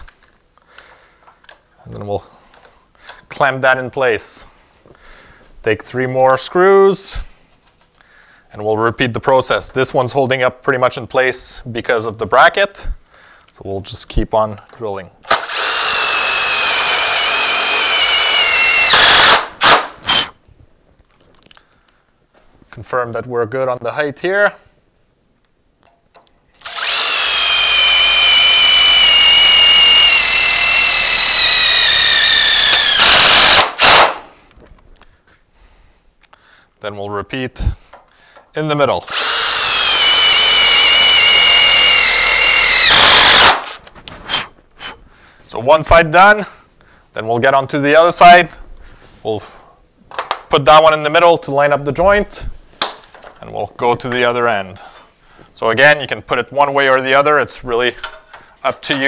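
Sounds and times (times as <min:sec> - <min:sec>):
power drill driving a screw: 0:15.3 - 0:20.3, 0:26.6 - 0:34.2, 0:39.1 - 0:43.8.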